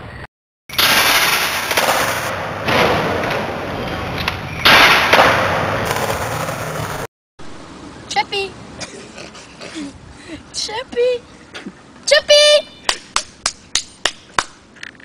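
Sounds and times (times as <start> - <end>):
skateboard hitting ground: 0.7 - 7.1
skateboard wheels rolling on wood: 1.1 - 7.1.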